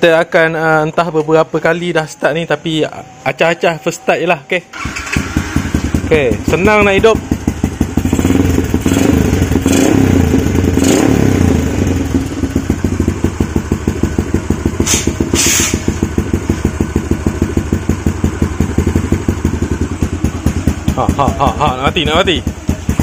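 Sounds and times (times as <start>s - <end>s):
motorcycle engine revving and idling: 4.7s - 23.0s
short hissing bursts: 14.8s - 16.0s.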